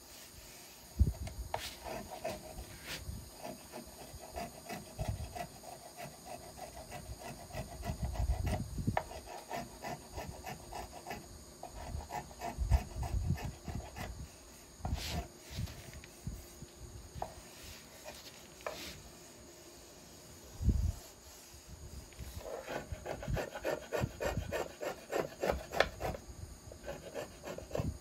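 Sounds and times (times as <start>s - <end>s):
hand plane rasping on wood: 1.6s - 14.1s, 22.4s - 26.2s.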